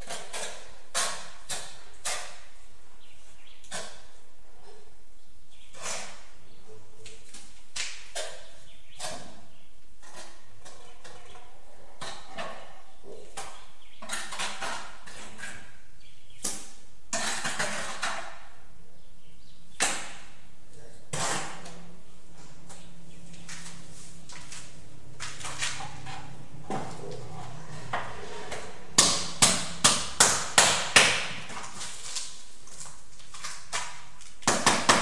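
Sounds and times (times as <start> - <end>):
trowel scraping in a bucket: 25.3 - 28.9.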